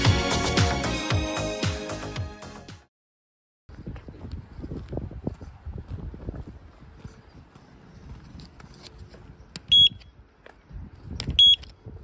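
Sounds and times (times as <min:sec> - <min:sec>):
faint footsteps: 0:03.7 - 0:11.2
card reader beeps: 0:09.7 - 0:10.1, 0:11.3 - 0:11.7.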